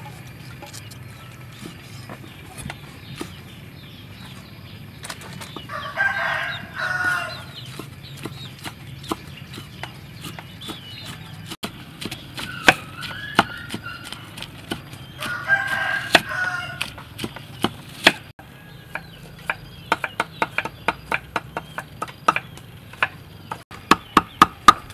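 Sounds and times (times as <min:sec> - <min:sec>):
cleaver chopping mushrooms: 0:00.6 - 0:03.6, 0:05.0 - 0:24.9
rooster crowing: 0:05.6 - 0:07.6, 0:15.2 - 0:17.0, 0:18.4 - 0:19.4
knife slicing onion: 0:07.7 - 0:15.4.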